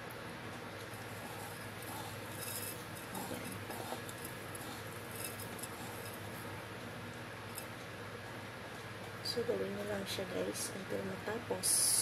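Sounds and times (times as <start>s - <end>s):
steady low hum: 0.0s - 12.0s
light clinks against a bowl: 1.3s - 6.3s.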